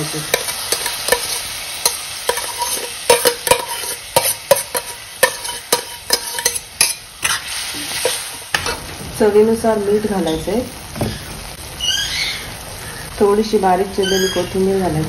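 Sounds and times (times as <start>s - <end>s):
pan sizzling: 0.0s - 15.0s
steel spoon clinking on bowl: 0.3s - 7.4s.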